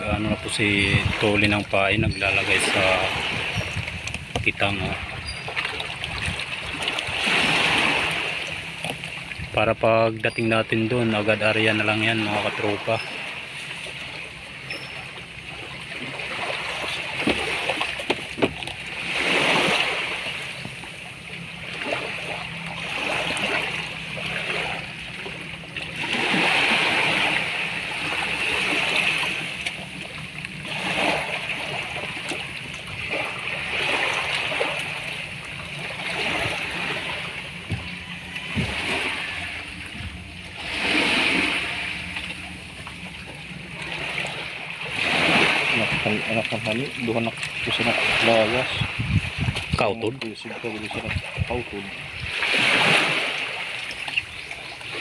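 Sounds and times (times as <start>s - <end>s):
small waves lapping: 0.0s - 55.0s.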